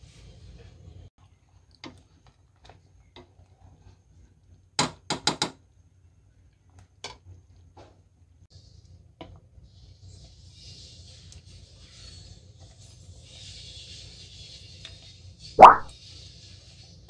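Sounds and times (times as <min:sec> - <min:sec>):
spoon stirring thick stew in a pot: 0:08.6 - 0:17.0.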